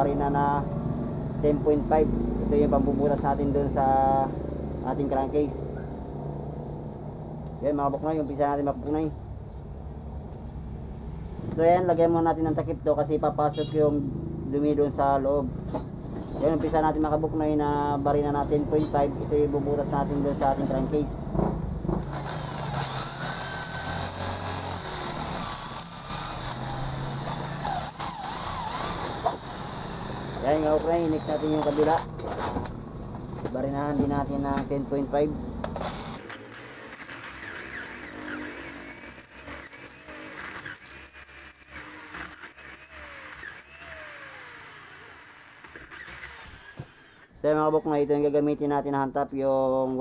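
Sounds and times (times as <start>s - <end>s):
electric drill boring into metal: 36.0s - 47.4s
drill bit hissing cutting metal: 36.2s - 47.3s.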